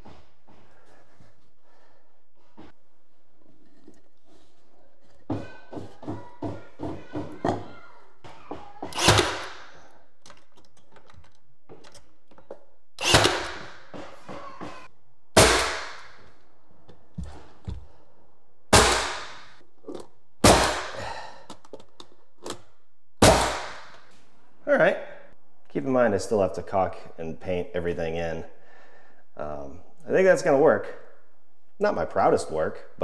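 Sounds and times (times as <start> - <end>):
nail gun firing: 8.9 - 9.8, 13.0 - 13.9, 15.4 - 16.2, 18.7 - 19.5, 20.4 - 21.0, 23.2 - 24.0.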